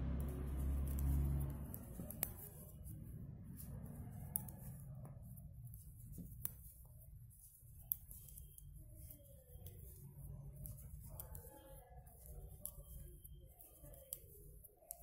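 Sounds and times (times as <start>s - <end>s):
low rumble: 0.0s - 5.1s
low hum: 0.0s - 5.6s
knitting needles clicking: 0.0s - 15.0s.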